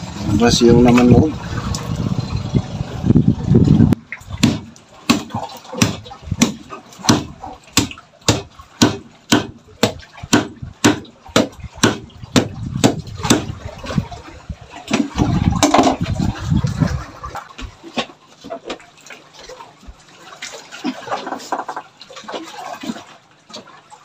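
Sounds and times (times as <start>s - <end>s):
low rumbling noise: 0.0s - 4.4s
machete chopping on wooden block: 4.4s - 13.5s.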